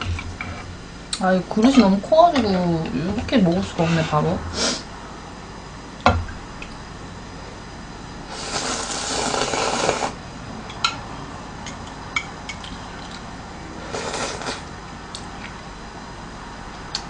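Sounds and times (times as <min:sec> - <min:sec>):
noodles slurped: 0:08.3 - 0:10.2, 0:13.8 - 0:14.7.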